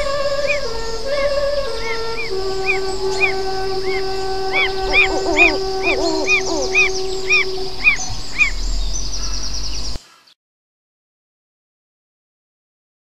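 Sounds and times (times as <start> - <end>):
sustained tones: 0.0 - 8.8
steady high hiss: 0.0 - 10.0
bird calls: 0.0 - 10.4.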